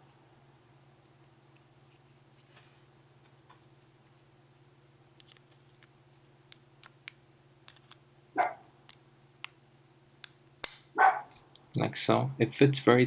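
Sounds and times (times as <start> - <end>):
dog bark: 8.4 - 8.7, 11.0 - 11.3.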